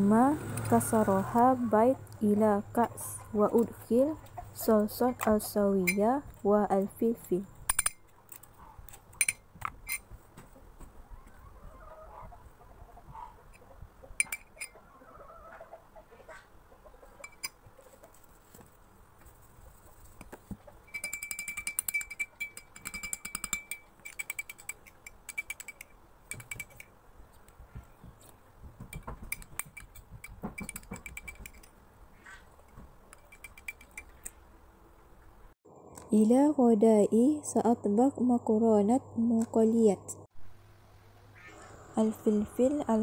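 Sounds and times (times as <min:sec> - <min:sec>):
metal spoon clinking glass mug: 0:09.2 - 0:10.0, 0:14.2 - 0:14.7, 0:20.9 - 0:26.9, 0:33.2 - 0:34.2.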